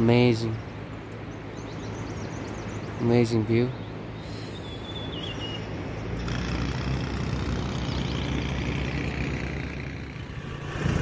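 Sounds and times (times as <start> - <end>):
vehicle engine running: 5.8 - 11.0
wide rushing noise: 6.4 - 11.0.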